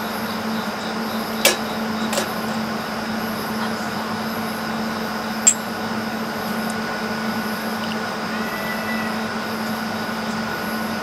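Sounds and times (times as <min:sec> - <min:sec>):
air conditioner humming: 0:00.4 - 0:08.3.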